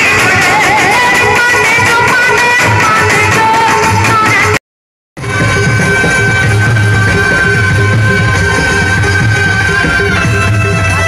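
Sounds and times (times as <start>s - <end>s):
electronic keyboard and harmonium: 0.0s - 4.6s, 5.2s - 11.0s.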